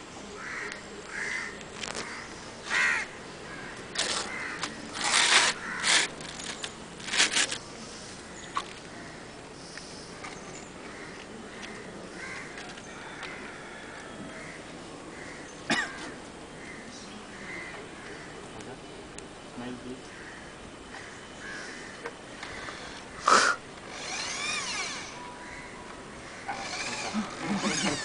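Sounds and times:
crows cawing: 0.4s - 4.8s, 5.5s - 6.1s, 8.9s - 9.3s, 10.9s - 18.4s, 20.0s - 28.0s.

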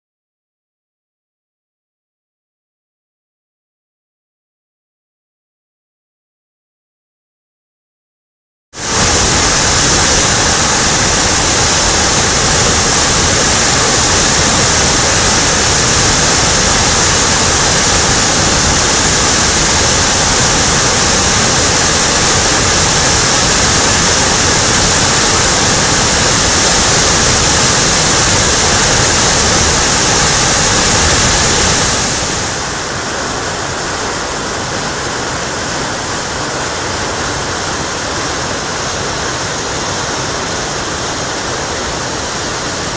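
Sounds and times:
rushing rapids: 8.8s - 42.9s
waterfall rushing: 8.8s - 42.9s.

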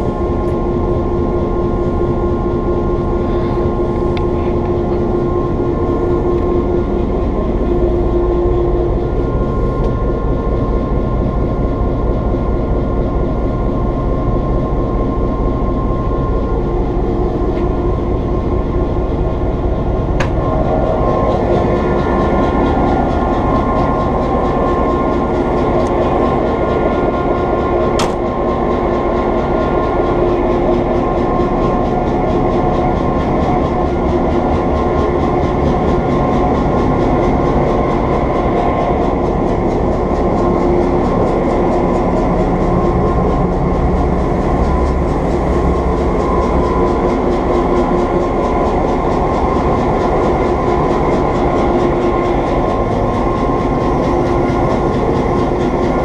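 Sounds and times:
diesel locomotive idling: 0.0s - 56.0s
sharp click: 28.0s - 28.2s.

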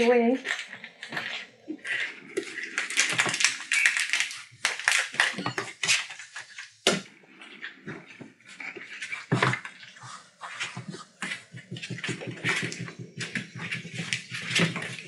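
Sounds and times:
puppies growling: 0.4s - 5.6s, 7.1s - 15.0s
paws scuffling: 7.3s - 15.0s.

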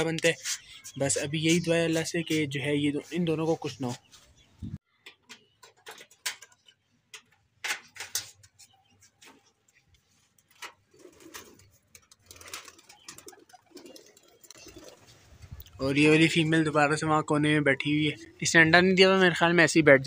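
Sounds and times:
pigeons cooing: 10.9s - 15.2s.

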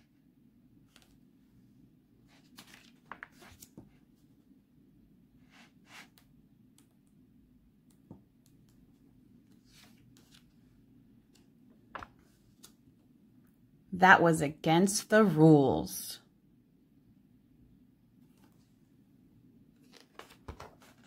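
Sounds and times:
book page rustling: 2.2s - 4.0s, 9.5s - 10.7s, 19.8s - 21.0s.

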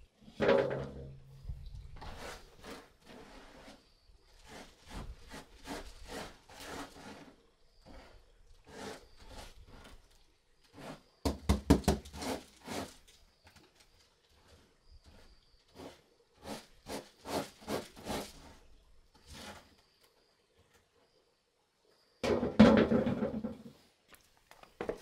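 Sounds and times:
hand scraping rice off woven tray: 4.4s - 10.0s, 11.8s - 13.2s, 14.4s - 18.6s.

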